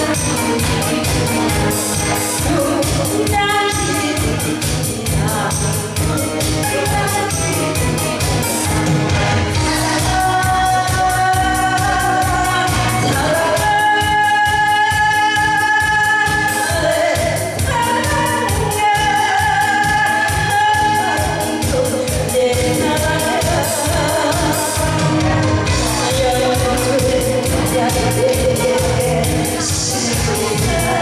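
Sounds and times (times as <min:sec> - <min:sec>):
backing track with steady beat: 0:00.0 - 0:31.0
woman singing into microphone: 0:00.0 - 0:31.0.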